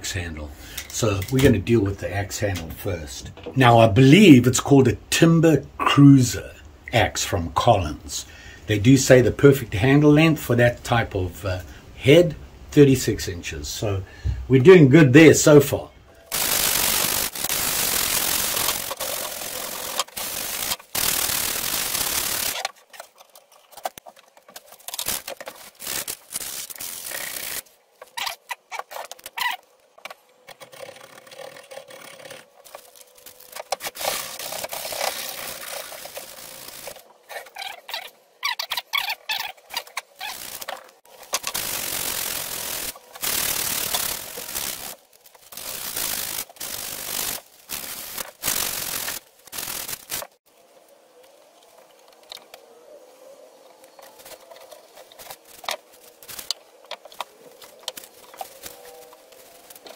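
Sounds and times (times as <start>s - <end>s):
sandpaper rubbing on wood: 16.3s - 22.7s, 24.9s - 27.6s, 30.7s - 38.1s, 41.4s - 50.3s.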